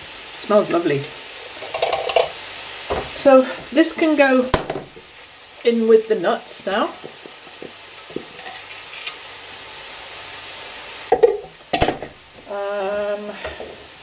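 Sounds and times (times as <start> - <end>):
bowl knocking down: 11.1 - 12.2.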